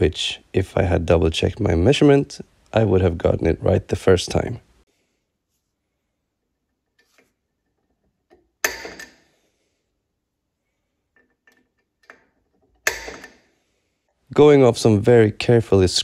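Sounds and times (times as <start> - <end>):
metal-on-metal clink: 7.7 - 9.3, 11.2 - 13.4.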